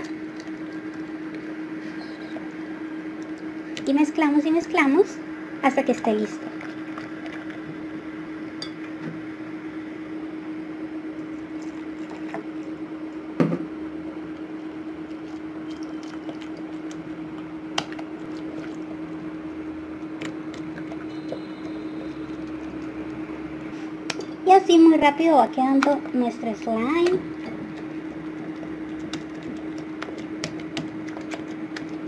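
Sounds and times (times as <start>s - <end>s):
wet stirring of slime: 0.0s - 3.9s, 6.0s - 8.1s, 11.1s - 13.0s, 14.2s - 24.4s, 25.6s - 32.0s
low hum: 0.0s - 24.5s.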